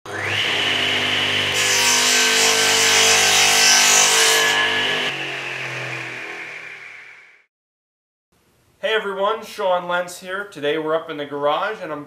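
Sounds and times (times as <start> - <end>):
power tool motor whine: 0.1 - 1.6, 4.5 - 7.4.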